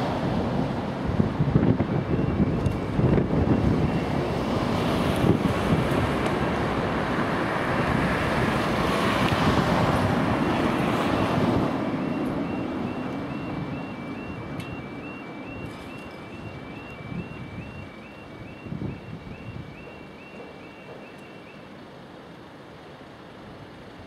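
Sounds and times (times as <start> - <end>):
warbling crossing alarm: 1.9 - 4.4, 10.3 - 21.8.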